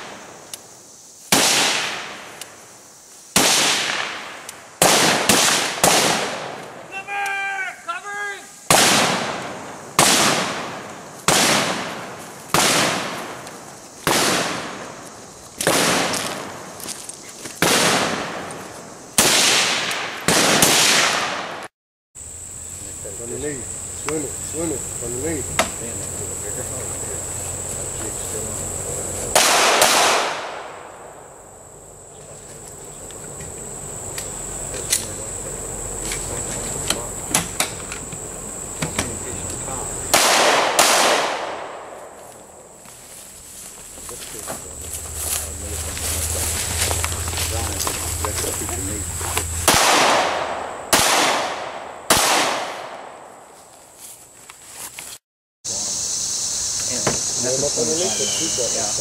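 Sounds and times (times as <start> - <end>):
echoing gunshots: 1.3 - 2.4, 3.3 - 6.9, 8.7 - 13.4, 14.0 - 15.0, 15.6 - 16.8, 17.6 - 21.7, 29.3 - 31.4, 40.1 - 42.2, 49.6 - 53.5
high-pitched insect buzz: 22.2 - 29.4, 30.8 - 40.1, 42.2 - 49.7, 53.6 - 59.0.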